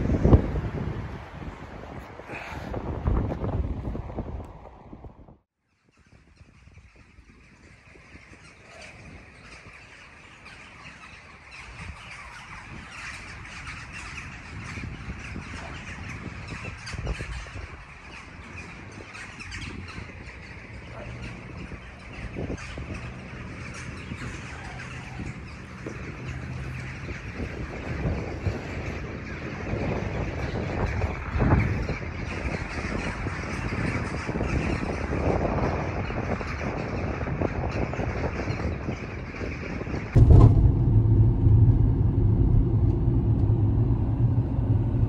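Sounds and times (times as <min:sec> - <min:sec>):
crows cawing: 0:02.3 - 0:02.7.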